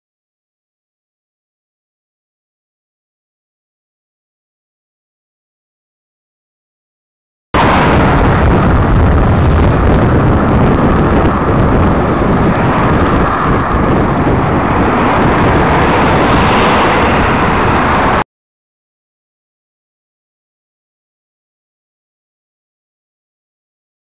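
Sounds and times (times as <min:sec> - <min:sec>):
passing traffic noise: 0:07.6 - 0:18.2
wind rumble on microphone: 0:07.6 - 0:18.2.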